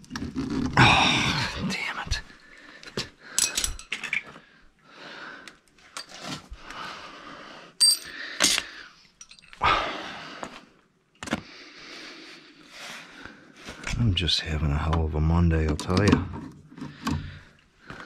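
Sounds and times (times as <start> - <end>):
metal tools clinking: 3.4 - 4.2, 7.8 - 9.6.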